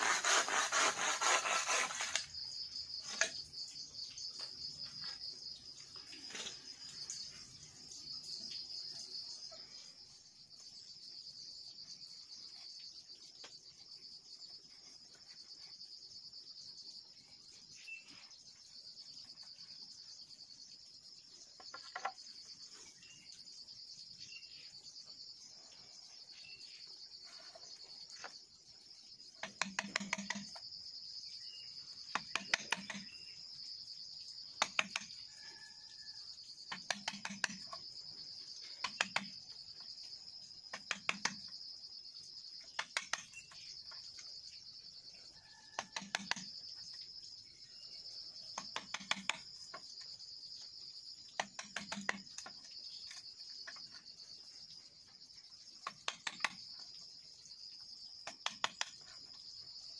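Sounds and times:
insects buzzing: 0:00.0 - 0:59.9
tool knocking on bamboo poles: 0:29.4 - 0:30.6, 0:32.1 - 0:33.1.

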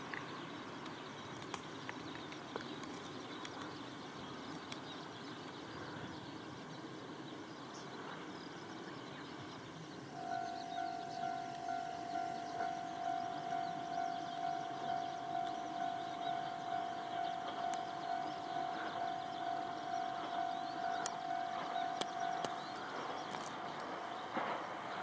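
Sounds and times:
faint sharp clicks: 0:00.1 - 0:03.8, 0:04.4 - 0:05.6
level crossing warning bell: 0:10.1 - 0:24.4.

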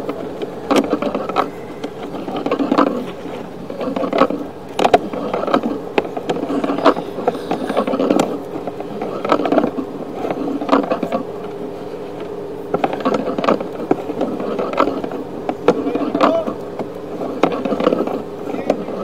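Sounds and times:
cable clicks and scrapes: 0:00.0 - 0:19.0
steady buzzing hum: 0:00.0 - 0:19.0.

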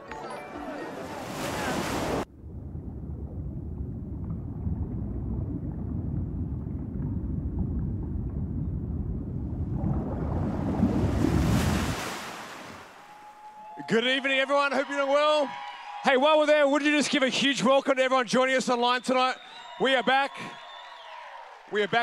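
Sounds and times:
muffled underwater rumble: 0:02.3 - 0:11.5.

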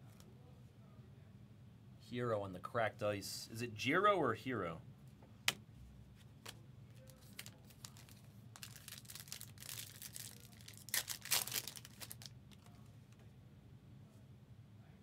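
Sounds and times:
foil wrapper crinkling and tearing: 0:07.0 - 0:12.7.

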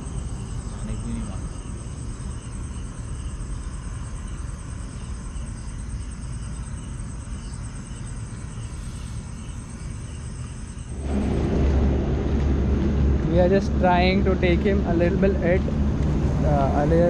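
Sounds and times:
crickets chirping: 0:00.0 - 0:17.0
low rumble: 0:10.8 - 0:17.0.

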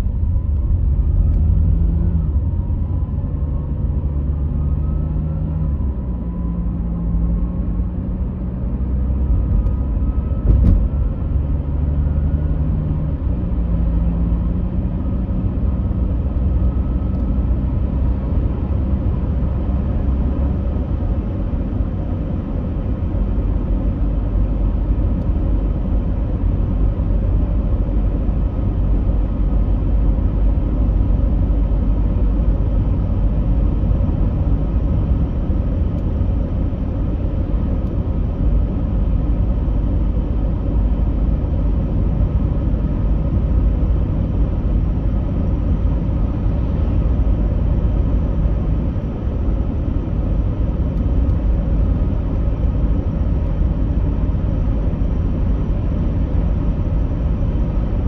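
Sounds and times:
low rumbling noise: 0:00.0 - 0:05.0.

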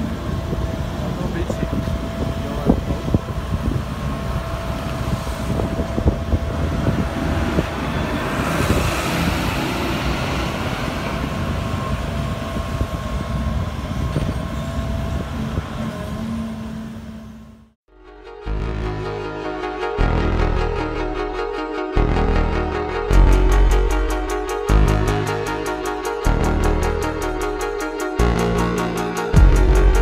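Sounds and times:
tractor passing by: 0:00.0 - 0:17.7
excavator diesel engine whining: 0:00.0 - 0:30.0.

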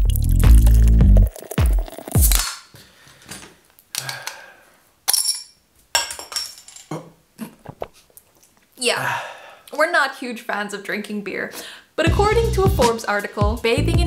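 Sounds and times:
intro music: 0:00.0 - 0:02.4.

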